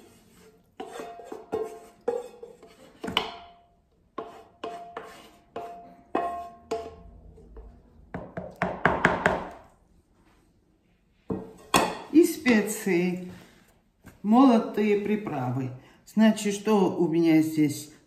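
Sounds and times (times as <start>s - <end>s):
wooden spatula knocking on bowl: 7.6s - 9.6s.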